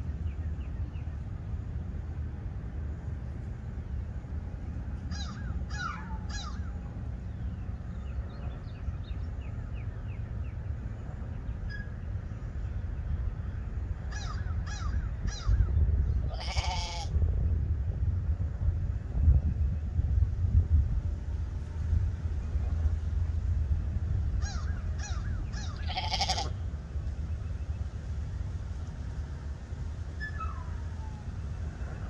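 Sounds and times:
wind rumble on microphone: 0:00.0 - 0:32.0
lamb bleating: 0:16.3 - 0:17.1, 0:25.8 - 0:26.5.

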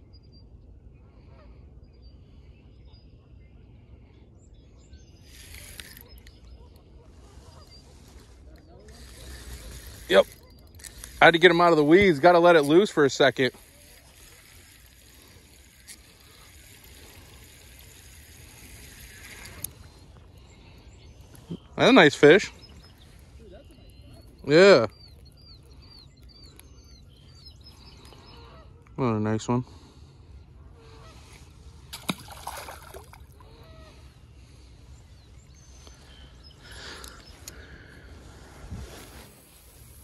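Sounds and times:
faint bird calls: 0:00.0 - 0:40.0
lakeside ambience: 0:00.0 - 0:40.0
fishing reel whirring: 0:05.0 - 0:21.4, 0:35.5 - 0:40.0
water swishing: 0:31.8 - 0:33.4.

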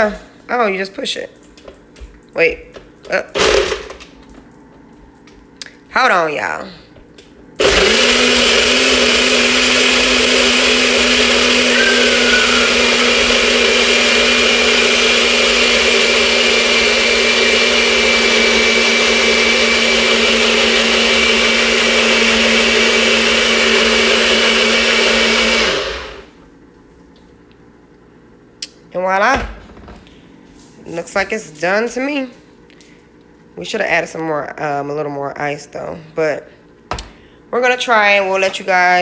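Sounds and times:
blender motor running: 0:03.4 - 0:04.0, 0:07.6 - 0:26.4.

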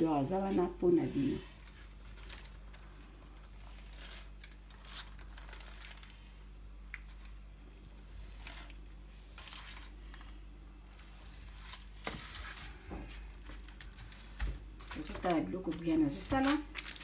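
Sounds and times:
low steady hum: 0:00.0 - 0:17.0
parchment paper rustling: 0:00.0 - 0:17.0.

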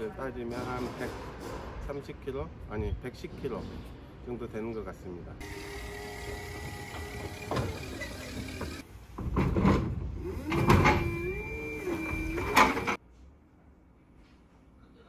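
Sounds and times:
forklift motor whine: 0:05.4 - 0:08.8, 0:10.2 - 0:13.0
metal clunks: 0:06.8 - 0:11.2, 0:11.9 - 0:13.0.

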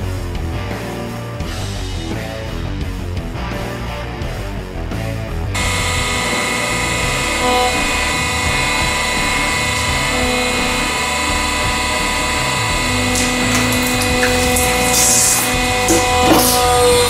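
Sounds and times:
hydraulic press pump whine: 0:05.5 - 0:17.0
low hum: 0:05.5 - 0:17.0.

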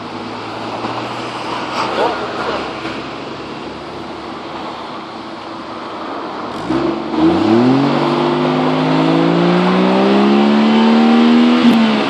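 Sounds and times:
car exhaust revving: 0:06.4 - 0:12.0.

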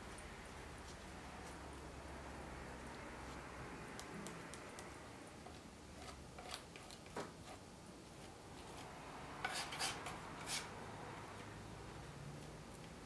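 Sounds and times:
palette knife scraping paint: 0:04.0 - 0:10.8.

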